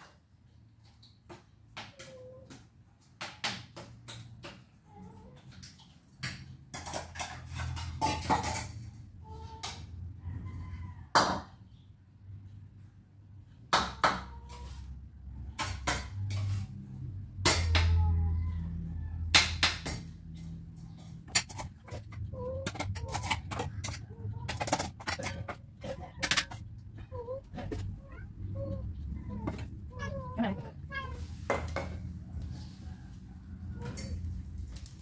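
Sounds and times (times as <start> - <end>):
sharp clicks and clatters: 19.2 - 30.1
cats meowing: 21.8 - 32.2.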